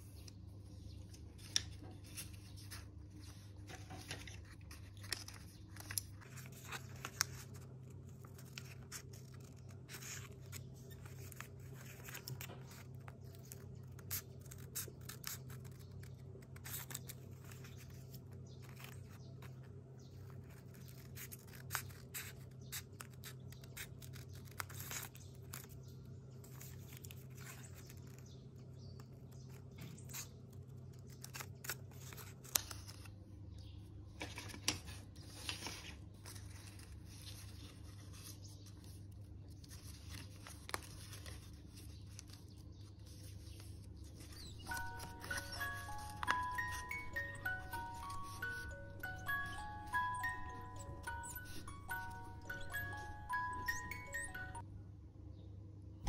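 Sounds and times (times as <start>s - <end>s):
scissors snipping paper: 1.2s - 28.3s, 39.6s - 53.8s
paper being creased by hand: 35.2s - 54.4s.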